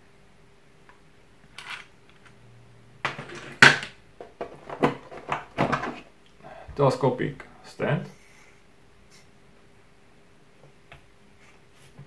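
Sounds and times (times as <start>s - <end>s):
plastic case rustle: 1.5s - 1.9s, 3.1s - 6.1s
plastic tray knocking: 3.0s - 6.0s.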